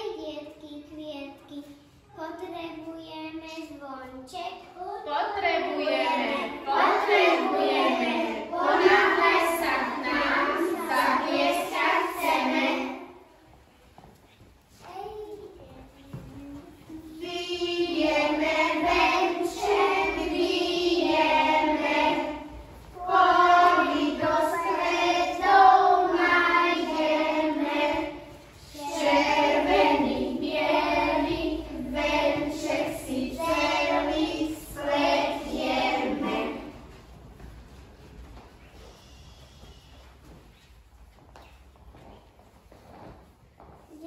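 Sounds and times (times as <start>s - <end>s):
children singing in unison: 5.4s - 13.2s, 16.9s - 36.9s.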